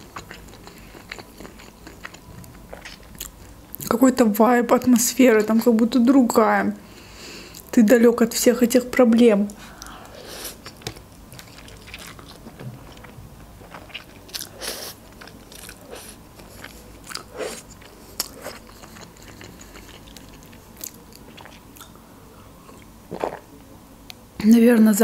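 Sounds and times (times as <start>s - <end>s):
noodles slurped and chewed: 11.4s - 21.9s.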